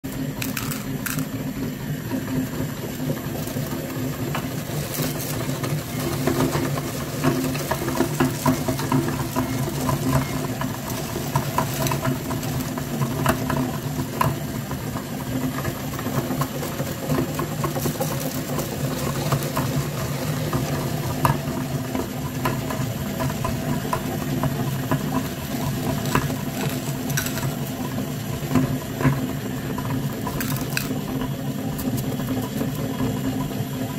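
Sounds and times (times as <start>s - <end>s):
meat grinder motor humming: 0.0s - 33.9s
candies clicking and rattling: 0.3s - 1.4s, 25.9s - 27.7s, 30.3s - 31.0s.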